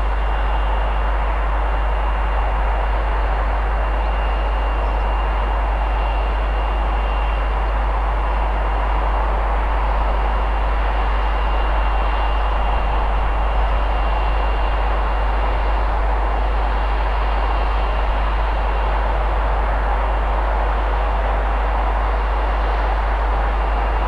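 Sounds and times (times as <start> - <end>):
faint high whine: 0.0 - 24.0
steady rushing noise: 7.2 - 24.0.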